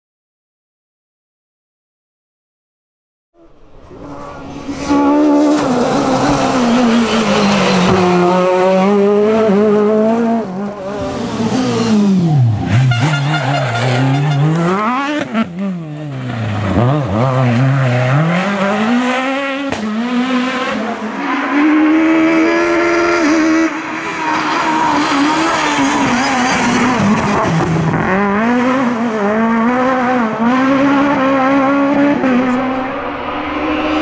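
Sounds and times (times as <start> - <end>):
rally car engines revving: 3.4 - 34.0.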